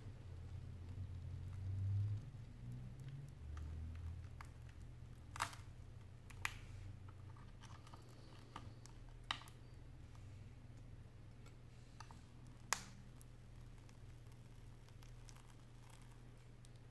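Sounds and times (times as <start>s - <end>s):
sharp snaps: 10.7s - 13.3s
glass crackling and ticking: 12.3s - 16.9s.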